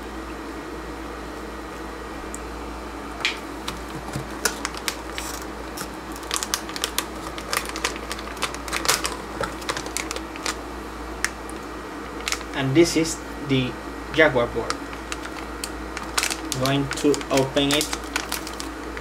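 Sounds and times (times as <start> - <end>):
plastic bag crinkling and crackling: 3.6 - 10.6, 11.2 - 12.6, 14.6 - 19.0.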